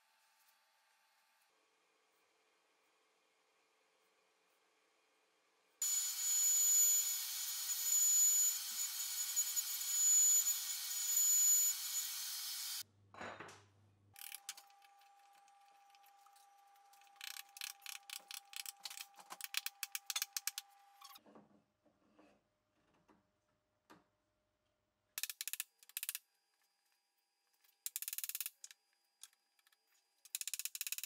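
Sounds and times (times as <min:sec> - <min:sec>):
router cutting wood: 0:05.8 - 0:12.8.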